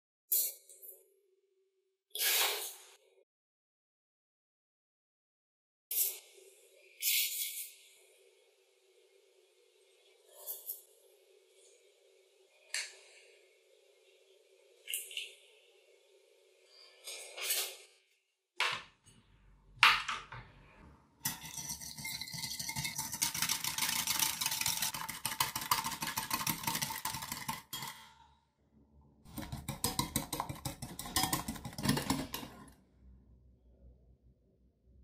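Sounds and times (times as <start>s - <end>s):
whisk clattering against glass bowl: 21.3s - 27.9s, 29.3s - 32.6s.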